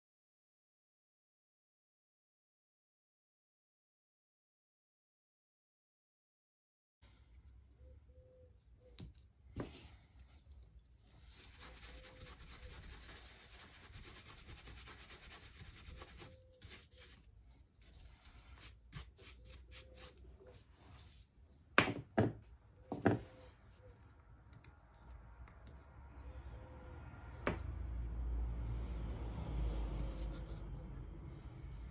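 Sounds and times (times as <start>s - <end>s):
paintbrush scrubbing wood: 11.1s - 17.3s.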